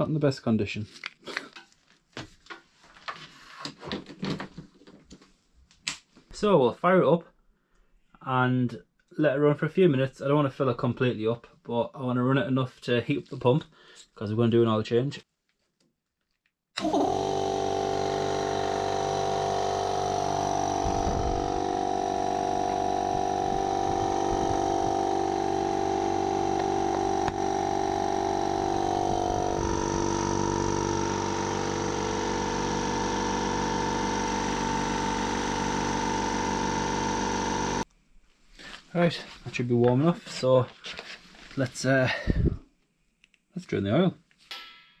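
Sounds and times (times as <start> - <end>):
air compressor running: 16.8 - 37.8.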